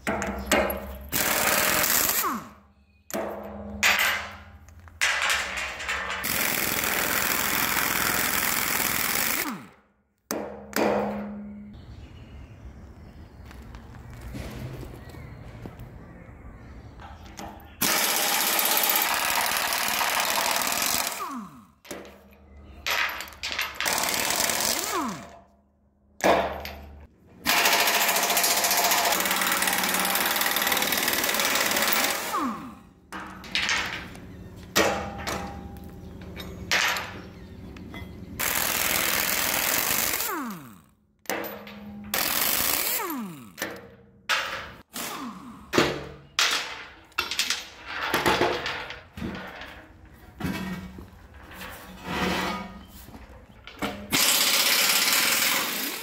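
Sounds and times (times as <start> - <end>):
pneumatic impact wrench hammering: 0.0 - 4.4, 5.5 - 11.4, 17.8 - 22.0, 23.8 - 25.4, 27.4 - 32.7, 38.4 - 46.1, 53.8 - 56.0.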